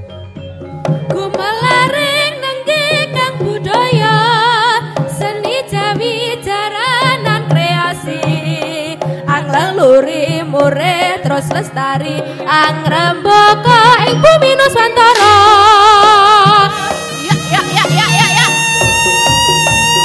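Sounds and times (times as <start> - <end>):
drums: 0.0 - 20.0
ornamented melody line: 13.6 - 20.0.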